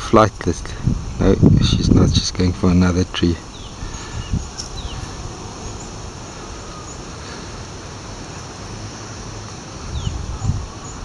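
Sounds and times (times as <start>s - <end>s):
even hiss: 0.0s - 11.0s
bird chirps: 3.4s - 7.4s, 9.8s - 11.0s.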